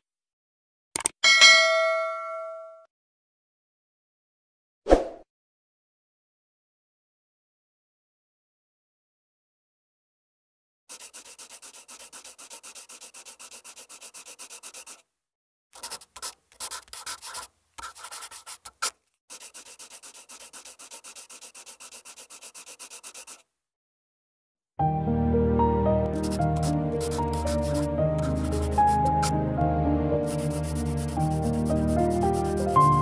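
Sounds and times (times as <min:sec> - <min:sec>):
marker pen scribbling: 0:10.9 - 0:15.0, 0:15.8 - 0:23.5, 0:26.1 - 0:29.4, 0:30.2 - 0:33.0.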